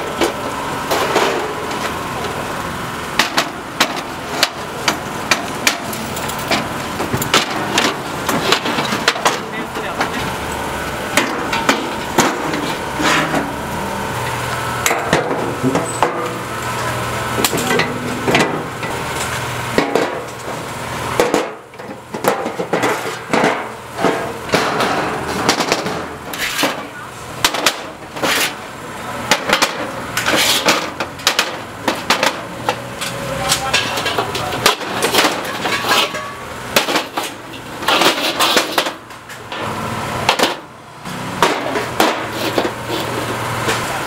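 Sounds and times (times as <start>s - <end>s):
low engine hum: 0.0s - 30.3s
metal clanking on tables: 29.3s - 39.7s.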